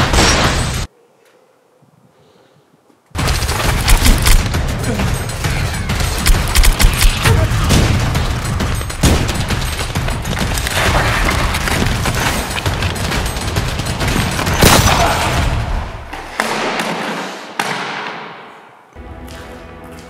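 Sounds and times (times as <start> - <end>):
automatic gunfire: 3.2 - 4.5, 6.2 - 8.3
heavy bangs: 3.2 - 16.7.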